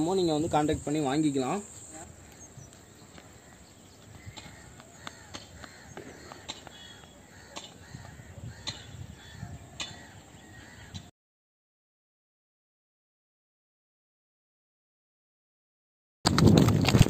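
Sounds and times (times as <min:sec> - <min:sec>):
birds calling: 0:00.0 - 0:11.1.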